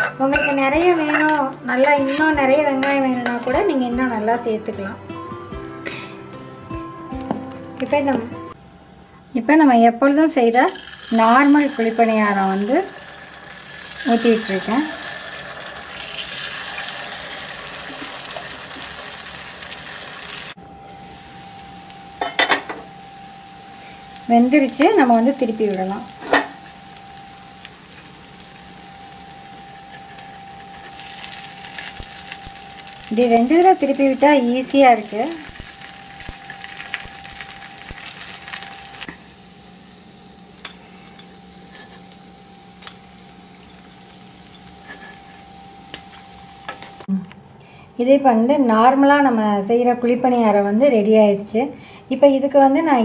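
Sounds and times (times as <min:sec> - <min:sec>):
faint steady hum: 0:08.5 - 0:53.0
batter sizzling in hot oil: 0:10.6 - 0:47.1.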